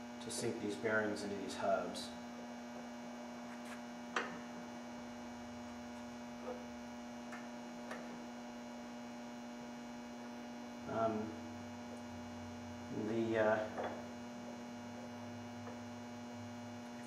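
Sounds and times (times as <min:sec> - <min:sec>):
steady electrical hum: 0:00.0 - 0:17.0.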